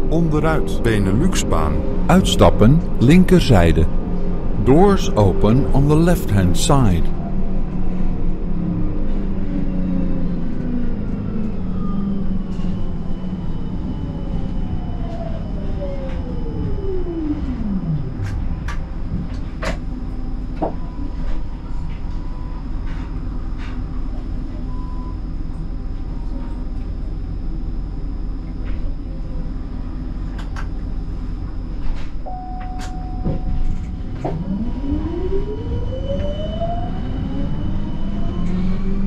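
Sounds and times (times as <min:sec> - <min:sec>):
low hum of standing tram: 0:00.0 - 0:39.0
tram electric drive whine: 0:00.0 - 0:39.0.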